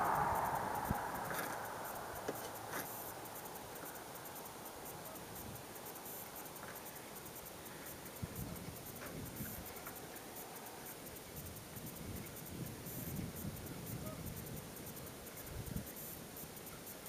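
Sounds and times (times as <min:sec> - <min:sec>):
rushing noise: 0:00.0 - 0:05.0.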